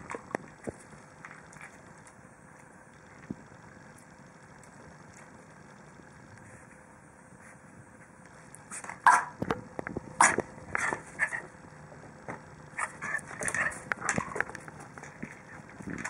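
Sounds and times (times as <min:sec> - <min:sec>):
small dog yapping: 0:09.0 - 0:09.4.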